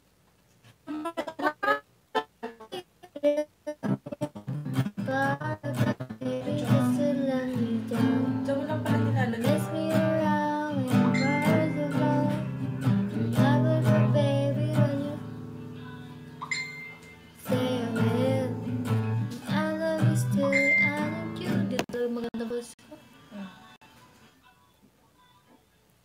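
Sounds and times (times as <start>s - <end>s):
nylon-string guitar strumming: 3.8s - 21.8s
woman singing: 5.0s - 15.3s, 17.4s - 22.8s.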